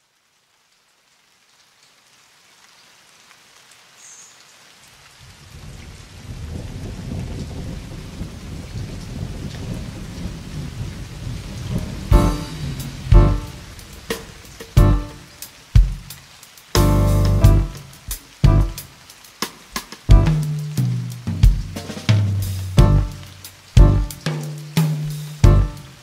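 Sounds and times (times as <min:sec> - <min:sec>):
rain: 0:00.0 - 0:26.0
thunder rumbling: 0:05.6 - 0:16.2, 0:16.8 - 0:19.1, 0:20.0 - 0:26.0.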